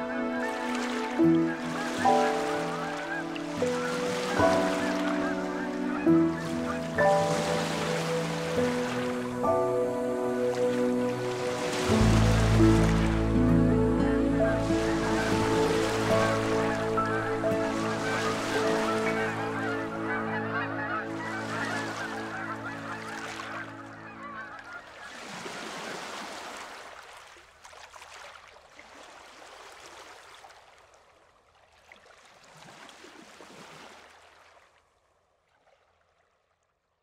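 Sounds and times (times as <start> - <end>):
sustained music chord: 0.0 - 24.5
birds honking and calling: 0.0 - 26.1
ocean waves washing in: 0.0 - 27.3.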